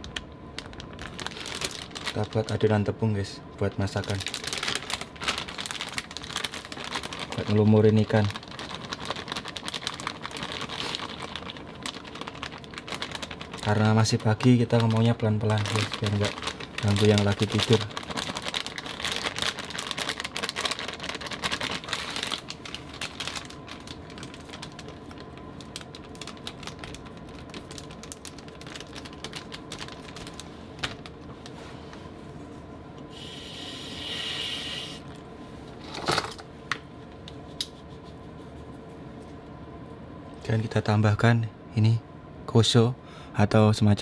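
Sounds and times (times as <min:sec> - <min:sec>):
brief hiss: 0:33.1 - 0:35.0.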